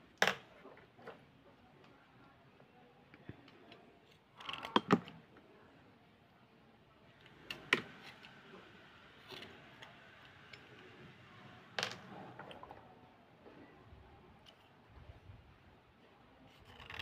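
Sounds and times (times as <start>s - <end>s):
blade scraping slate pencil: 16.5s - 17.0s.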